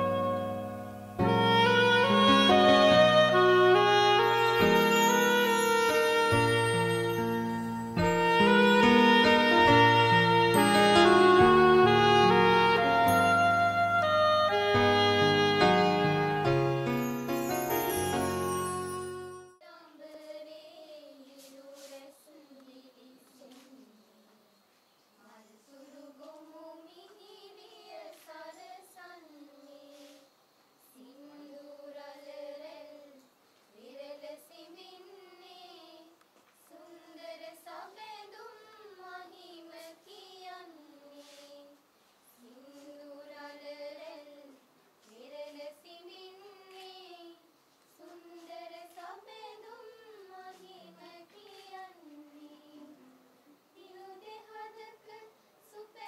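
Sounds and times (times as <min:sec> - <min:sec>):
women singing in unison: 0:19.6 - 0:24.4, 0:25.2 - 0:56.0.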